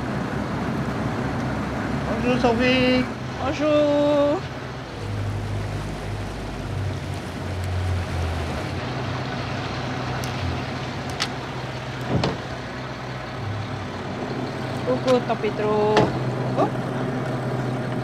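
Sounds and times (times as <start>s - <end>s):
outboard motor humming: 0.0s - 18.0s
sharp knocks: 12.1s - 12.5s.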